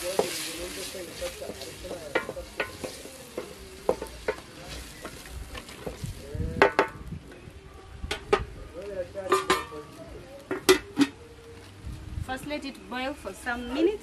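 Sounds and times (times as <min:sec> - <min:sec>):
food sizzling in a saucepan: 0:00.0 - 0:07.0
wooden stick knocking on pot: 0:01.4 - 0:05.2, 0:06.6 - 0:07.0.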